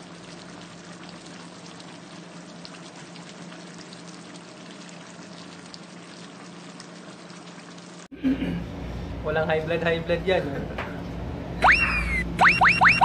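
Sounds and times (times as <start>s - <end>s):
sauce bubbling and popping: 0.0s - 8.1s
low steady hum: 0.0s - 13.0s.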